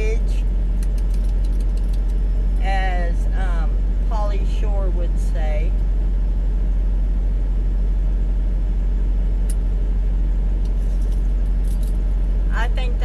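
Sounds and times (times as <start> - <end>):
vehicle engine idling: 0.0 - 13.0.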